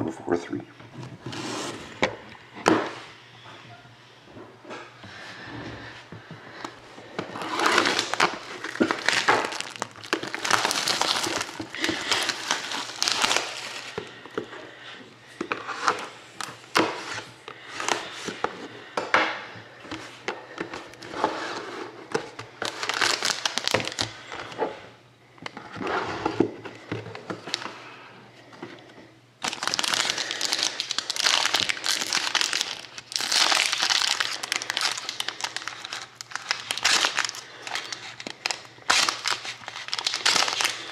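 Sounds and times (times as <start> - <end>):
plastic shrink wrap crinkling: 7.0 - 14.3, 22.2 - 24.6, 29.4 - 40.9
foil card pack crinkling: 7.2 - 14.2, 22.5 - 24.5, 29.4 - 40.9.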